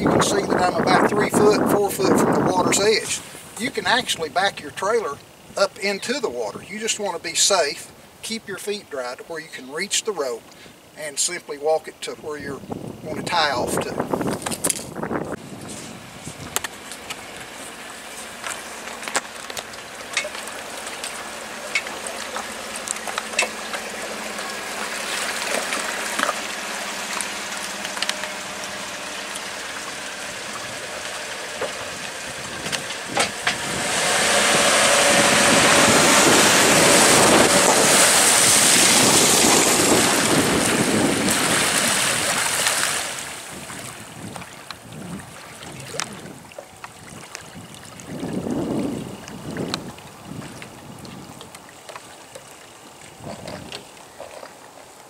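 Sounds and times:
wind on microphone: 0:00.0 - 0:04.7, 0:12.5 - 0:16.8, 0:30.4 - 0:51.6, 0:53.1 - 0:54.4
loud rushing water: 0:12.7 - 0:55.0.

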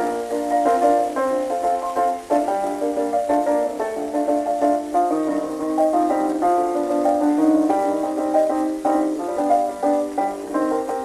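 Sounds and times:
jazz dance band on old record: 0:00.0 - 0:11.0.

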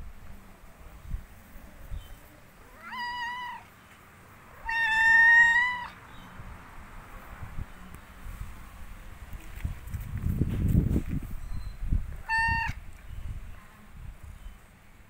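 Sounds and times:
cat meowing: 0:02.6 - 0:03.7, 0:04.6 - 0:06.0, 0:12.2 - 0:12.8.

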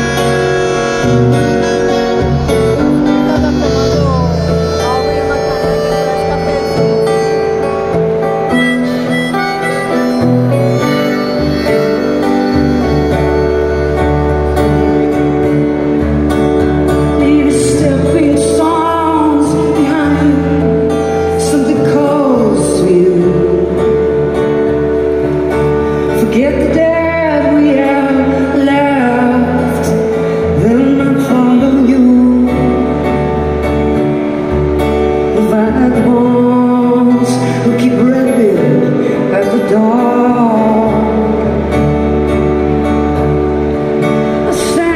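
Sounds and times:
harmonica melody: 0:00.0 - 0:22.8
live folk-rock band playing: 0:00.0 - 0:44.9.

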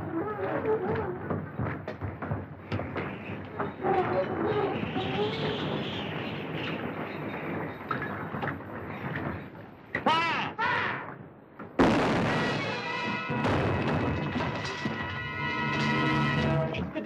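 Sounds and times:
cannon boom: 0:11.1 - 0:16.9.

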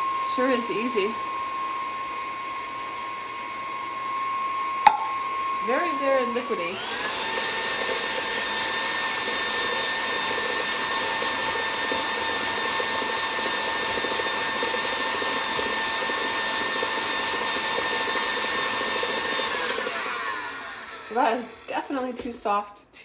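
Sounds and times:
stand mixer motor whine: 0:00.0 - 0:22.5
beater whipping runny mix: 0:04.9 - 0:22.6.

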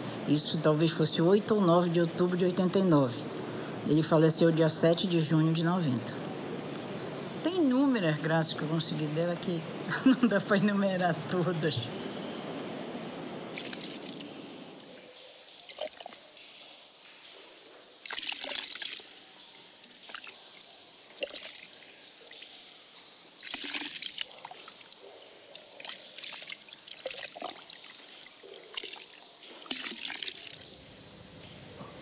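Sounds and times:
liquid dripping: 0:00.1 - 0:31.7
liquid pouring and splashing: 0:13.4 - 0:31.5.

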